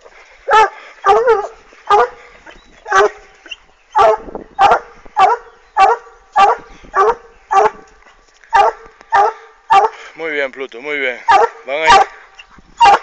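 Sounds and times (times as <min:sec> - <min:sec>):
dog barking: 0:00.5 - 0:02.2, 0:02.9 - 0:03.2, 0:04.0 - 0:07.8, 0:08.5 - 0:10.0, 0:11.3 - 0:12.2, 0:12.8 - 0:13.0.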